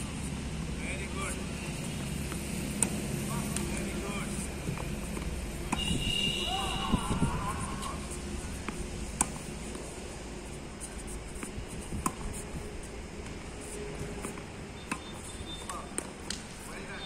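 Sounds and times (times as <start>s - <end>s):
steady low hum: 0.0s - 6.4s, 7.0s - 16.8s
tennis ball hit with racket: 1.9s - 9.9s.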